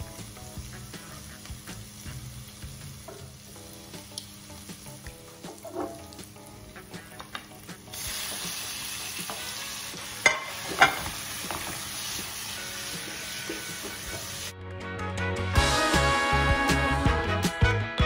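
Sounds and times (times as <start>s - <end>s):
fish sizzling in oil: 0.0s - 14.5s
spatula knocking on pan: 3.0s - 3.4s, 5.5s - 6.1s.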